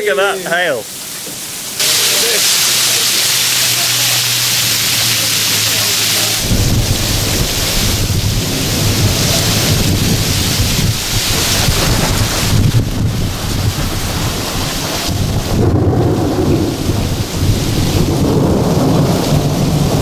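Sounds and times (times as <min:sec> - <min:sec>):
heavy rain hissing: 0:00.0 - 0:20.0
low rumble of thunder: 0:06.4 - 0:20.0.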